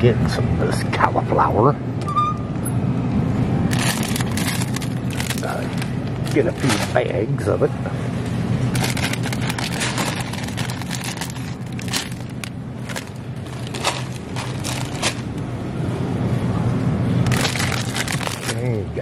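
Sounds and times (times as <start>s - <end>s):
freezer humming: 1.9s - 19.0s
plastic bags crackling: 3.7s - 7.1s, 8.7s - 15.4s, 17.2s - 18.9s.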